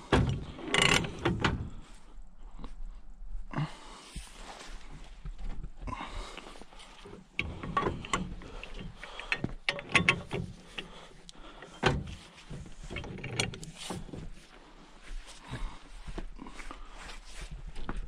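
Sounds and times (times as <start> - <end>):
pipe wrench clanking on metal: 0.1 - 1.6, 7.4 - 11.0.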